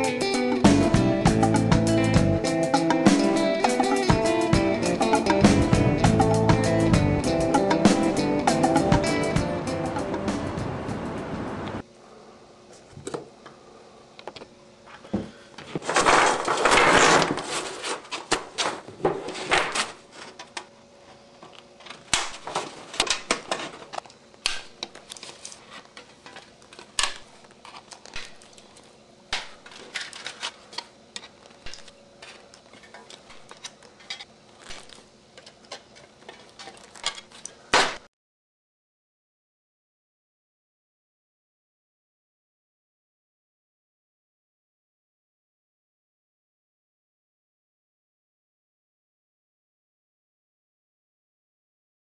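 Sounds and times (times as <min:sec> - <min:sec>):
metal sheets crinkling: 0:15.6 - 0:20.5, 0:21.8 - 0:24.1, 0:24.9 - 0:38.0.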